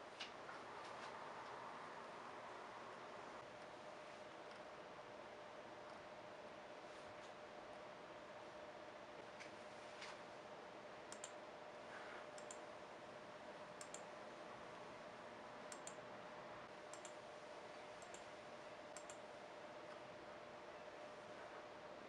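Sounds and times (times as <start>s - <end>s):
low steady hum and hiss: 0.0s - 22.0s
faint computer mouse clicks: 11.1s - 11.4s, 12.4s - 12.6s, 13.8s - 14.1s, 15.7s - 16.0s, 16.9s - 17.2s, 18.0s - 18.3s, 18.9s - 19.2s.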